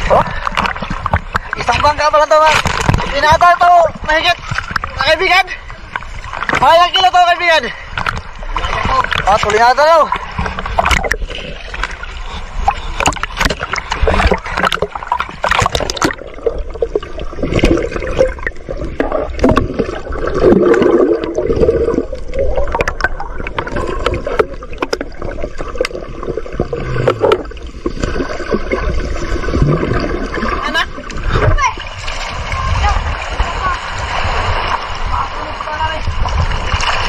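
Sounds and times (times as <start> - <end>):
heavy water splashing: 0.0 - 37.0
muffled underwater gurgling: 12.2 - 31.8.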